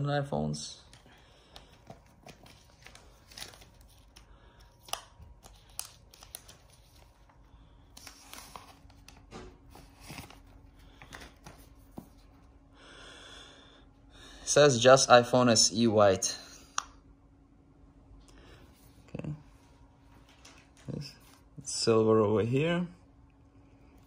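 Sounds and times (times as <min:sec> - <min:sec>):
plastic shrink wrap crinkling: 0:00.9 - 0:11.8.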